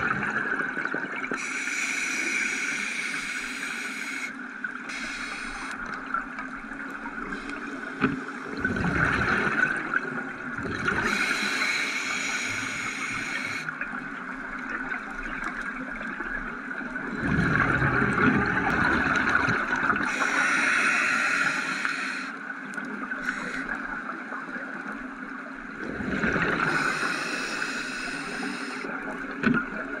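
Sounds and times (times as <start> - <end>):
hissing regulator inhale: 1.4 - 5.8, 11.0 - 13.7, 20.0 - 22.4, 23.2 - 23.8, 26.6 - 28.9
exhaled bubbles rushing: 8.5 - 11.2, 17.0 - 20.1, 25.7 - 26.9.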